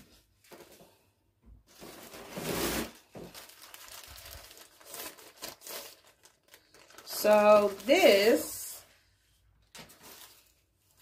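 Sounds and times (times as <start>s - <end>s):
plastic bag crinkling: 1.7s - 8.8s, 9.8s - 11.0s.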